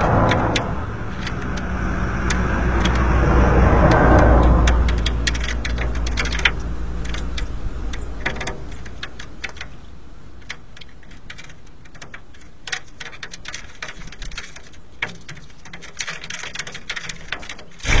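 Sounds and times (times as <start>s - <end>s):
flock of birds taking off: 0.0s - 9.7s
birds pecking seeds: 0.0s - 18.0s.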